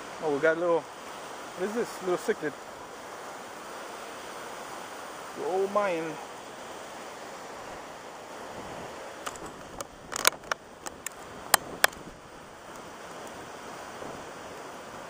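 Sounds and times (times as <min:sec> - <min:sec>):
wind noise on microphone: 0:08.4 - 0:15.0.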